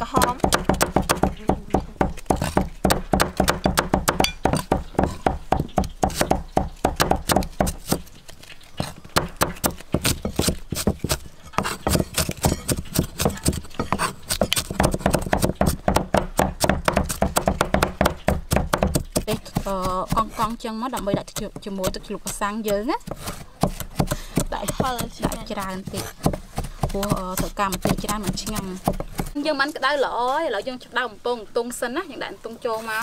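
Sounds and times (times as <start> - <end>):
cleaver chopping on wooden block: 0.0 - 8.1, 8.8 - 29.4.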